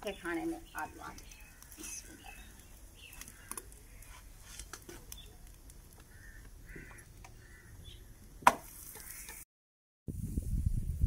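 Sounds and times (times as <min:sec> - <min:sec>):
bird calls: 0:00.0 - 0:04.4, 0:06.0 - 0:08.3, 0:08.9 - 0:09.4
sharp loud knock: 0:08.4 - 0:08.7.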